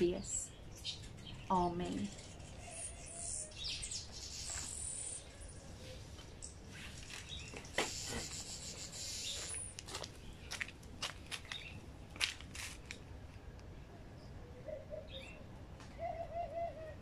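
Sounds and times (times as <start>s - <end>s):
small birds chirping: 0.0s - 10.8s, 11.4s - 11.8s.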